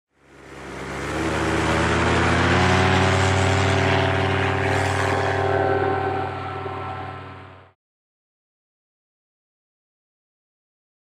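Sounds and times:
paramotor engine running: 0.1 - 7.8.

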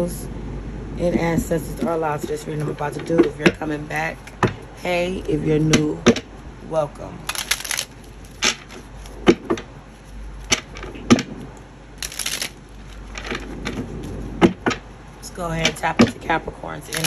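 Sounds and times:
cards riffle shuffling: 7.2 - 14.4.

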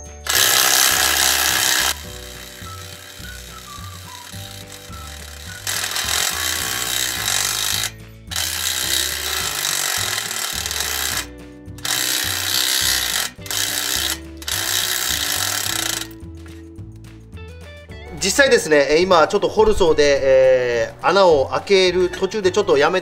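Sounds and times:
impact driver hammering: 0.0 - 16.2.

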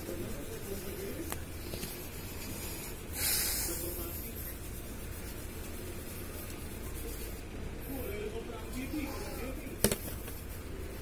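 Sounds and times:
fingers rubbing plastic: 0.0 - 2.4, 3.7 - 7.5.

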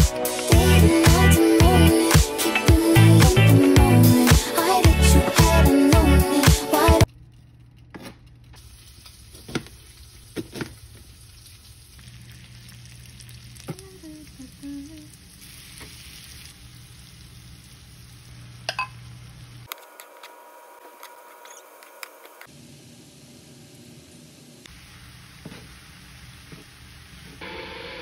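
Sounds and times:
food sizzling in a pan: 8.6 - 19.7, 22.4 - 28.0
utensil striking pan: 18.7 - 19.0.

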